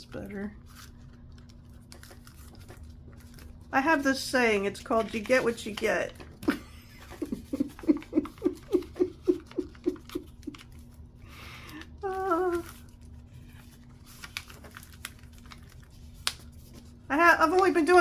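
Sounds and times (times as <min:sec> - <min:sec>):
paper rustling: 0:00.6 - 0:06.4, 0:07.1 - 0:18.0
woman chuckling softly: 0:06.4 - 0:10.7
woman humming hmm: 0:12.0 - 0:12.7.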